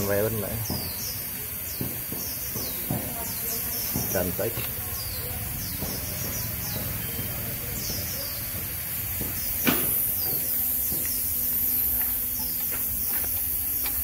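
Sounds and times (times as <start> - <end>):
small birds chirping: 0.0 - 14.0
sharp knock: 9.2 - 11.1.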